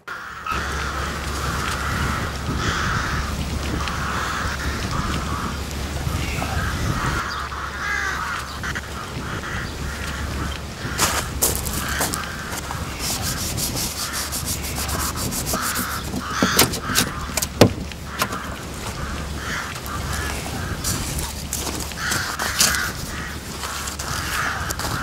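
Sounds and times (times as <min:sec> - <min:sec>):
crows cawing: 0:00.0 - 0:25.0
scraping frost off windscreen: 0:11.0 - 0:25.0.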